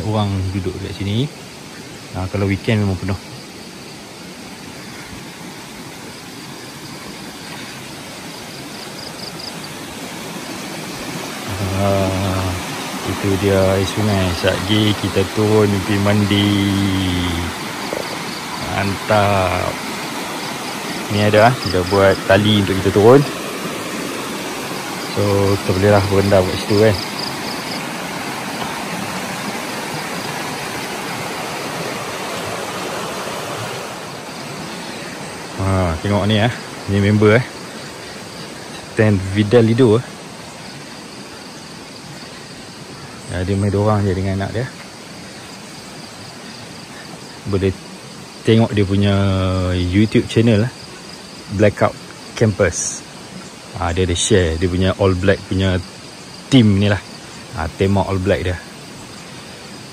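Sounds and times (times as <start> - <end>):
river rushing over rocks: 3.4 - 43.0.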